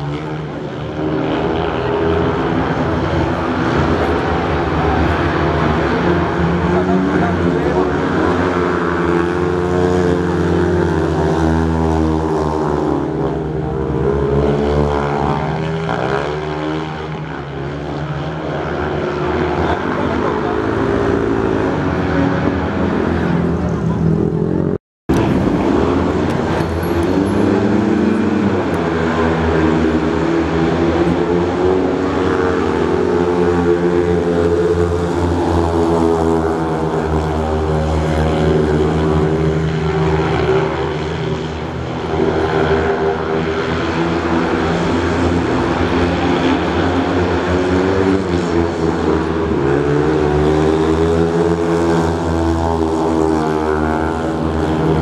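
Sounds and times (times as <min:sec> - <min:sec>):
motorcycles racing: 0:00.0 - 0:55.0.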